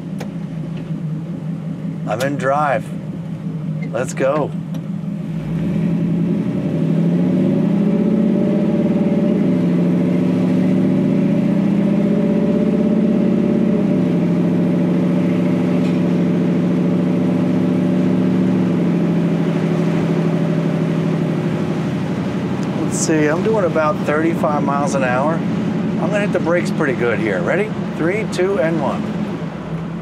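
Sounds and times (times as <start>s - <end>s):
truck engine accelerating: 0.0s - 30.0s.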